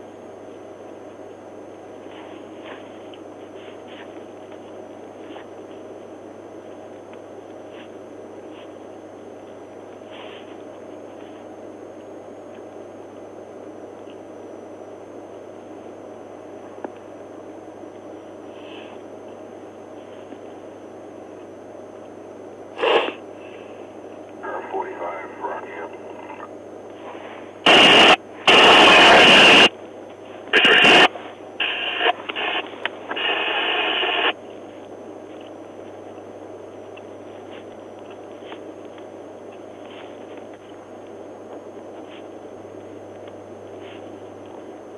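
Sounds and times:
cabin hiss and low hum: 0.0 - 44.9
faint high whine: 0.0 - 44.9
muffled radio transmission: 0.2 - 44.9
radio static bursts: 24.4 - 26.6, 27.6 - 29.7, 30.4 - 34.4.

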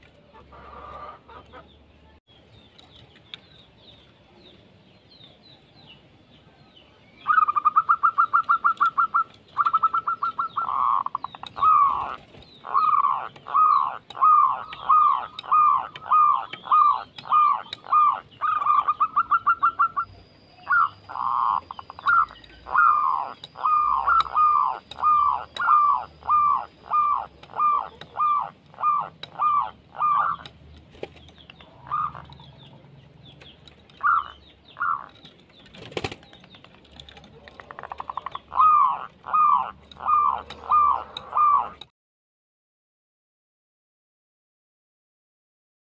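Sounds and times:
dove calling: 0.0 - 1.9, 7.2 - 41.9.

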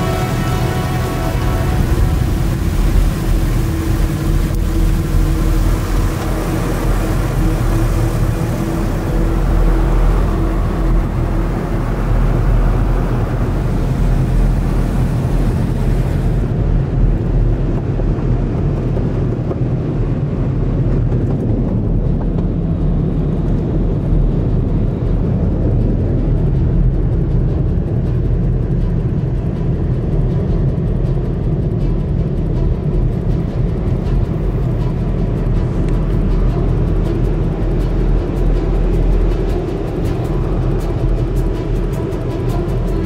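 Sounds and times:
water spray hiss: 0.0 - 16.5
car wash brushes rumbling: 0.0 - 26.8, 31.4 - 43.0.

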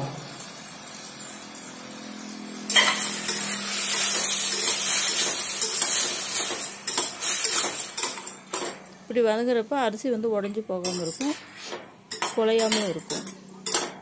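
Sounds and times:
sizzling: 0.0 - 14.0
steel spatula scraping pot: 2.7 - 8.7, 10.9 - 13.4.

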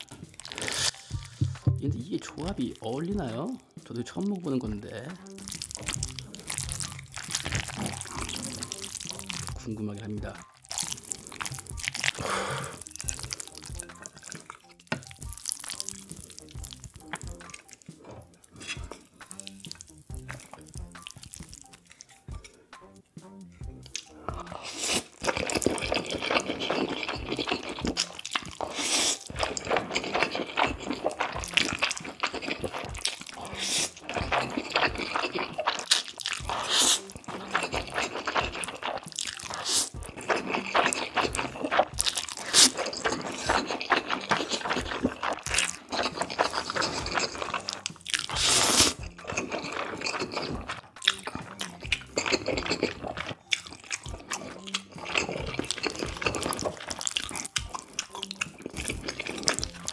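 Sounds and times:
man slurping noodles: 0.0 - 1.5, 10.8 - 14.4, 24.3 - 50.8
wet mouth clicks chewing: 5.3 - 9.6, 10.6 - 22.6, 23.8 - 59.9.

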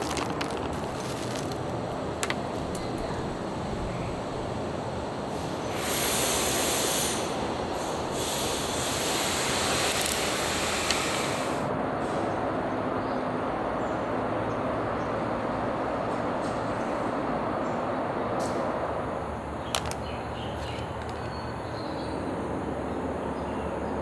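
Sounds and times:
loud hiss: 5.3 - 12.2.

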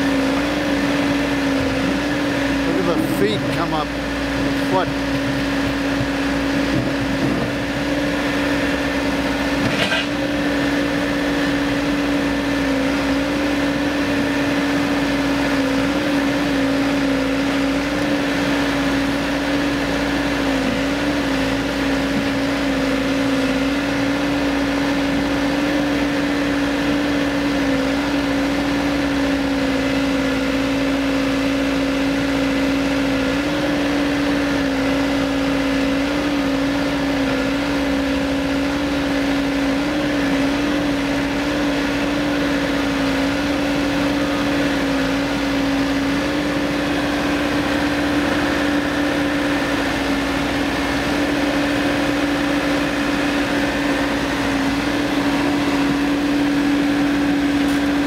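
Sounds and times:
diesel engine running: 0.0 - 58.0.

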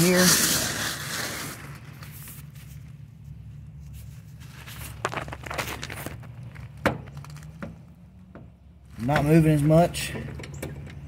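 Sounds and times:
crunching on gravel: 4.3 - 7.8.

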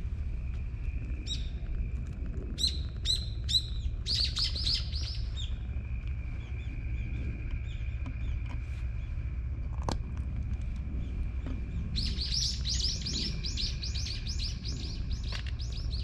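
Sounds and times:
steady low rumble: 0.0 - 16.0
bird chirping: 2.6 - 5.6, 11.0 - 16.0.

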